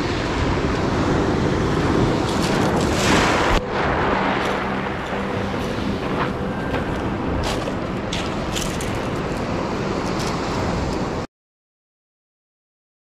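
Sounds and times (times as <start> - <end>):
wind on microphone: 0.0 - 11.3
surf washing onto pebbles: 0.1 - 6.4.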